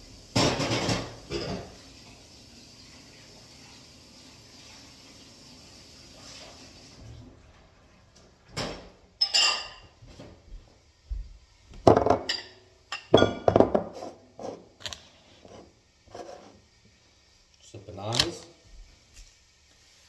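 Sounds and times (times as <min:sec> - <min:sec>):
bowls and utensils clattering: 0:00.4 - 0:01.8, 0:08.5 - 0:10.0, 0:11.9 - 0:14.7.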